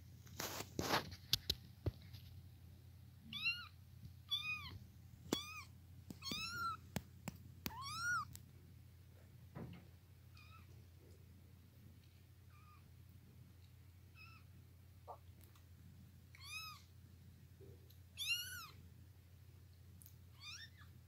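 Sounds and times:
kittens mewing: 4.3 - 6.8, 7.7 - 8.3.

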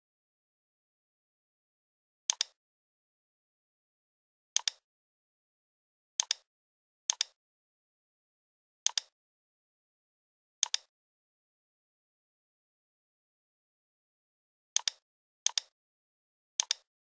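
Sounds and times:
computer mouse clicking: 2.3 - 2.6, 4.6 - 4.8, 6.2 - 6.5, 7.1 - 7.4, 8.9 - 9.1, 10.6 - 10.9, 14.8 - 15.8, 16.6 - 16.9.

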